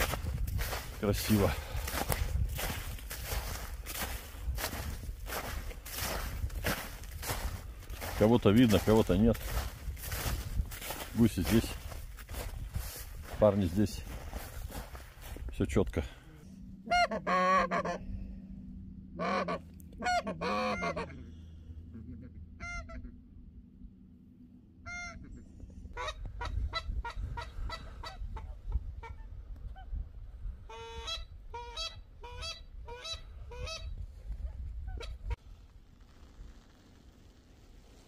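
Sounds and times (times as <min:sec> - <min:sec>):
geese honking: 0:16.7 - 0:18.3, 0:19.0 - 0:23.4, 0:24.8 - 0:29.3, 0:30.6 - 0:33.9.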